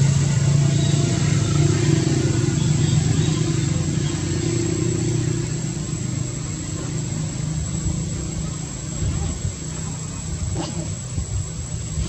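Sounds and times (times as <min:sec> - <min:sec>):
motor vehicle engine hum: 0:00.0 - 0:12.0.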